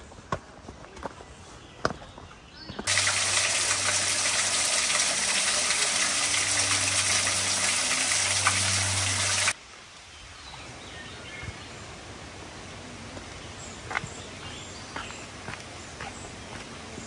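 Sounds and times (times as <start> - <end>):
creek water rushing over rocks: 2.9 - 9.6.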